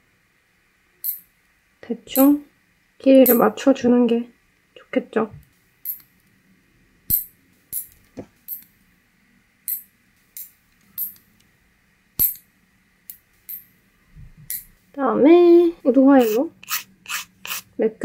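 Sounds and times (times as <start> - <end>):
nail clipper snipping nails: 3.3 - 3.5, 16.2 - 17.6.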